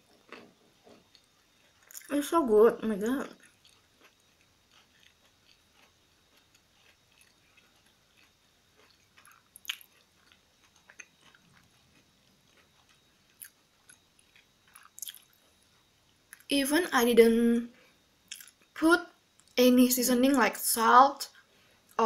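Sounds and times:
close chewing crunchy food: 0.0 - 2.2, 3.2 - 16.5, 18.3 - 19.6.

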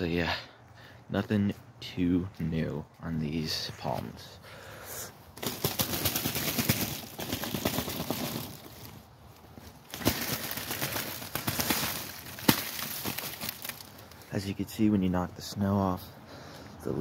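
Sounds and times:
palm fronds rustling and ticking: 1.5 - 17.0.

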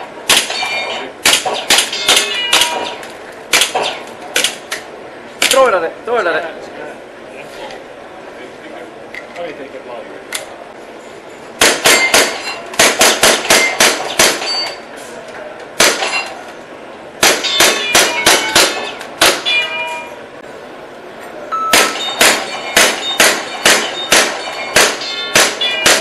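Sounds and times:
airsoft gun shots: 0.3 - 4.6, 11.6 - 14.6, 15.8 - 16.2, 17.2 - 19.5, 21.8 - 26.0.

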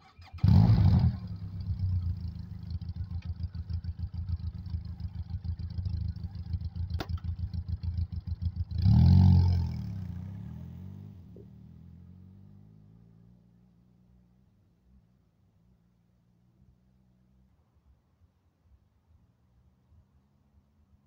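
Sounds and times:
motorcycle engine starting and idling: 0.0 - 10.6
motorcycle revving and pulling away: 0.2 - 14.0.

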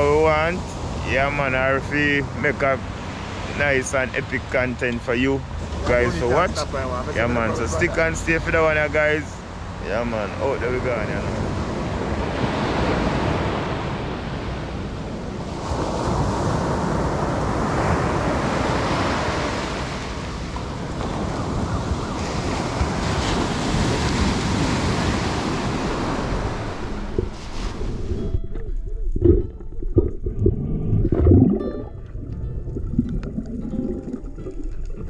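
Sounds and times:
sea surf washing: 0.0 - 35.0
wind buffeting microphone: 11.6 - 31.4.

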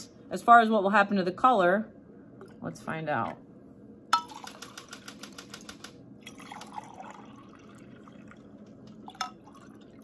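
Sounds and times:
liquid pouring between glasses: 6.2 - 10.0.

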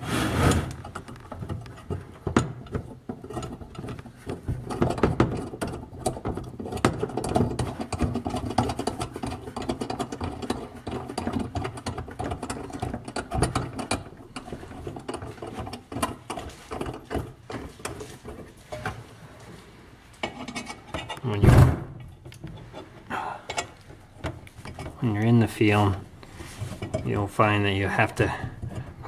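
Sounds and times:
thump: 21.4 - 22.0.

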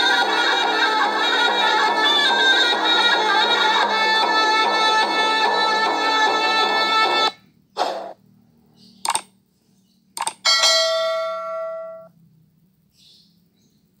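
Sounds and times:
music: 0.0 - 7.4
short swish: 7.8 - 8.2
clicks: 9.0 - 9.3, 10.2 - 10.4
notification bell chime: 10.5 - 12.1.

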